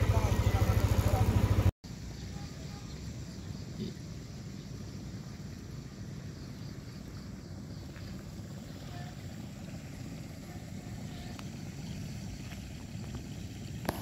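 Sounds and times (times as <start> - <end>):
motor scooter running: 0.0 - 1.7, 7.8 - 14.0.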